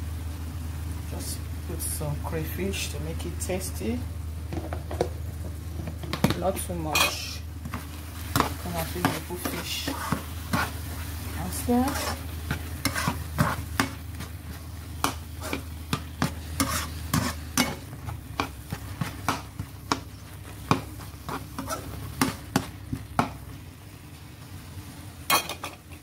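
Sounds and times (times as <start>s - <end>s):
sauce sizzling: 0.0s - 26.0s
spoon scraping a pan: 6.9s - 22.7s.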